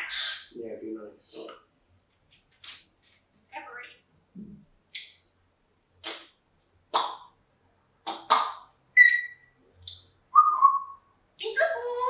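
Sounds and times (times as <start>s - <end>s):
parrot squawking: 0.0s - 0.6s, 8.1s - 9.6s, 10.4s - 12.0s
parrot whistle: 9.0s - 9.6s, 10.3s - 11.1s.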